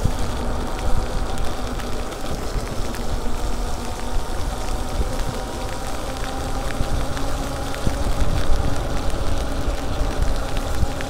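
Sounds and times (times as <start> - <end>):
raindrops ticking: 0.0 - 11.0
wind and tyres on wet pavement: 0.0 - 11.0.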